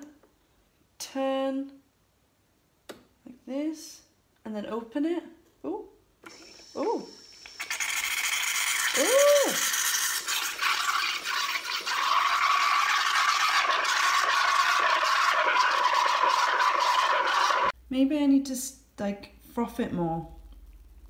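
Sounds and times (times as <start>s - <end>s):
steam wand hissing: 6.3s - 17.7s.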